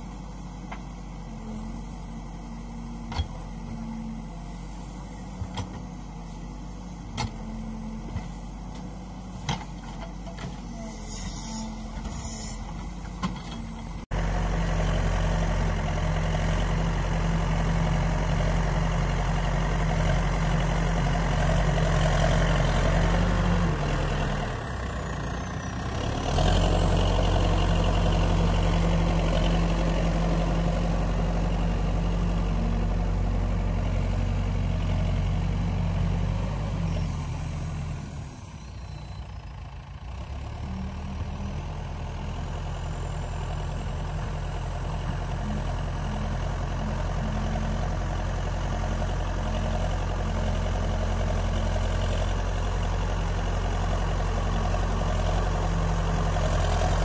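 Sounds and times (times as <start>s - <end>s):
diesel engine working: 0.0s - 57.0s.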